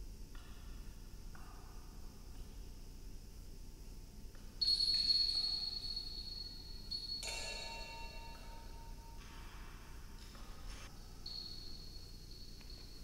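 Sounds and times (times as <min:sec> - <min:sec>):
small metal bells ringing: 0:04.6 - 0:09.2, 0:11.0 - 0:13.0.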